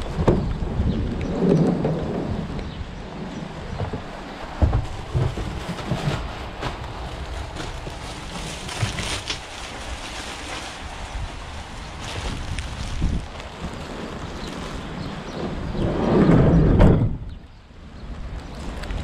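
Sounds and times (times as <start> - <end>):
wind buffeting microphone: 0.0 - 19.0
plastic sack rustling: 4.5 - 15.2.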